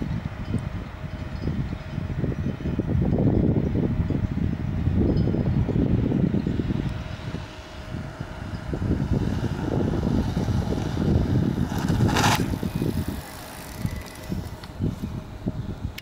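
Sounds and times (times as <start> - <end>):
wind on microphone: 0.0 - 16.0
tyres rumbling on asphalt: 5.8 - 16.0
bike rushing past: 7.2 - 15.0.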